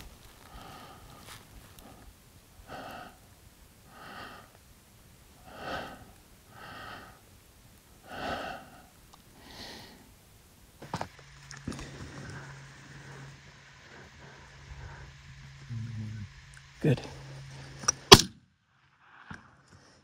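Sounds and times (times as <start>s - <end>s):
person breathing close to microphone: 0.4s - 4.6s, 5.4s - 7.3s, 8.0s - 10.2s, 11.6s - 15.7s.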